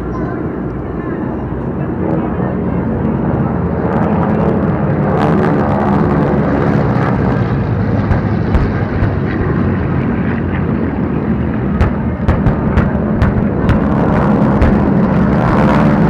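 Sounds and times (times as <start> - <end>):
piston engine planes droning: 0.0 - 16.0
pyrotechnic explosions: 5.0 - 16.0.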